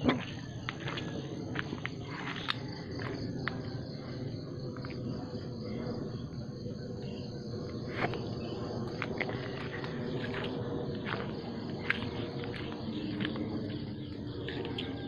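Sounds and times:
footsteps on dry grass and leaves: 0.0 - 3.7, 8.0 - 15.0
insects trilling: 0.0 - 15.0.

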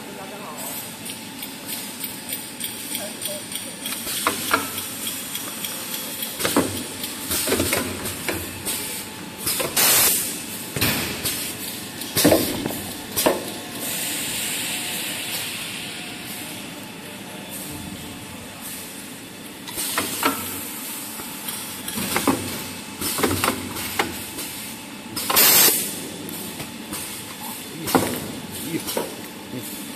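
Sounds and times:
pneumatic air hiss bursts: 8.7 - 10.4, 13.8 - 16.4, 25.2 - 25.8.

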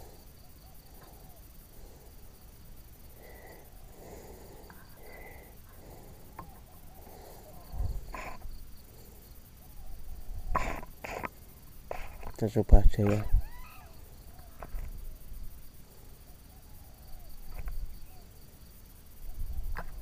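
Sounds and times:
insects trilling: 0.0 - 20.0.

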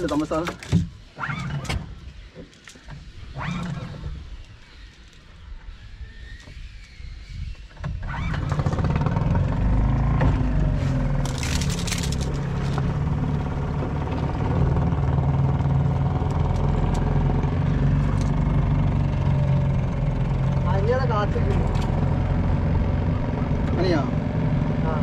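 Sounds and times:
boat engine running: 8.4 - 25.0.

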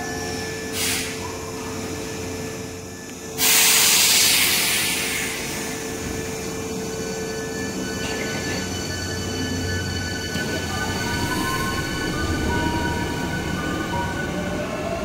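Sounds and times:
train venting compressed air: 3.4 - 5.6.

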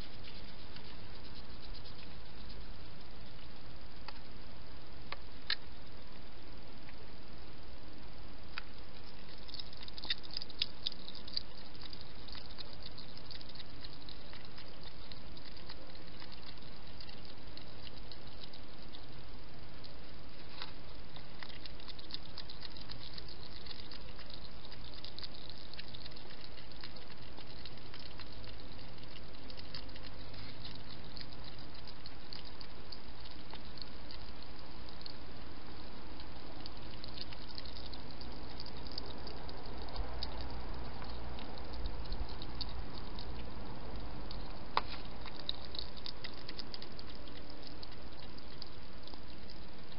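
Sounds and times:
steady hiss: 0.0 - 49.9
hedgehog mouth clicks and smacks: 5.1 - 5.7, 8.6 - 19.2, 19.8 - 35.3, 36.1 - 49.9.

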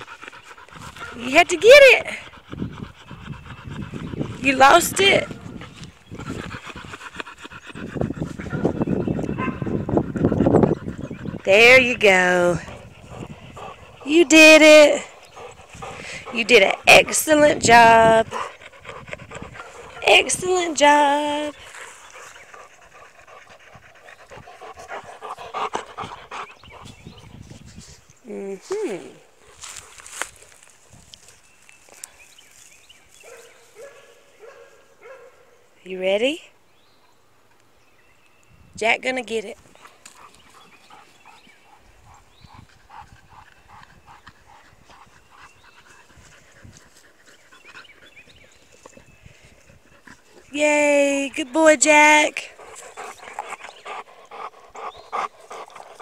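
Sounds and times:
dog panting: 0.0 - 27.9, 39.7 - 50.6, 51.4 - 56.0
dog rhythmic sounds: 6.2 - 27.0.

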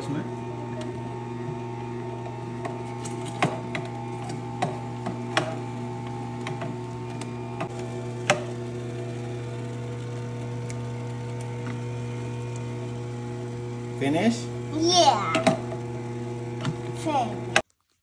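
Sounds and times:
electric juicer motor humming: 0.0 - 17.6
clicks and knocks in juicer chute: 2.2 - 8.8, 15.3 - 15.9, 16.5 - 17.6.

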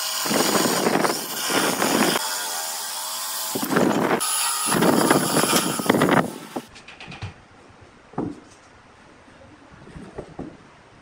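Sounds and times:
jigsaw sawing wood: 0.0 - 6.7.

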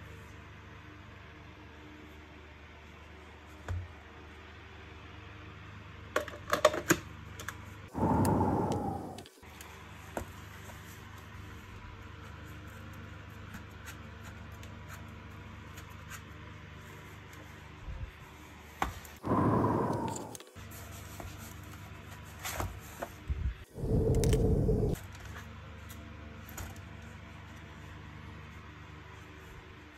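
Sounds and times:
loud whoosh falling in pitch: 19.2 - 20.4, 23.8 - 25.0.

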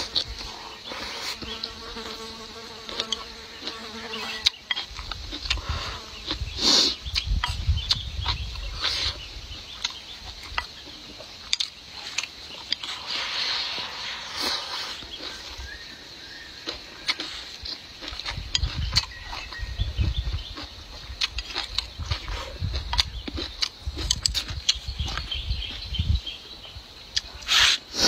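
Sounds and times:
insect buzzing: 0.0 - 10.8
chewing and slurping: 0.0 - 26.0.

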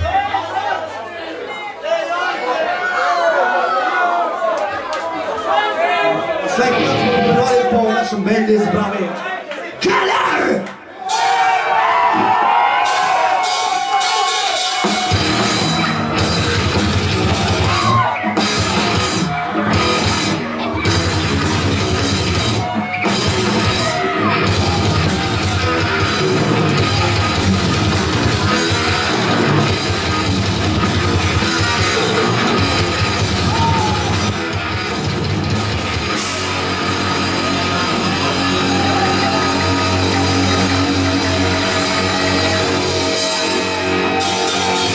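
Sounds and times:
rock band playing: 6.5 - 8.0, 11.1 - 44.9.

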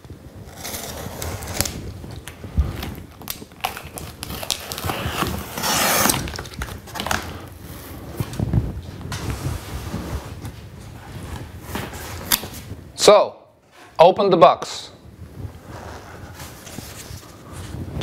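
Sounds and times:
knife slitting packing tape: 0.6 - 1.8, 2.8 - 7.3
box flaps pulled open: 4.3 - 7.4.

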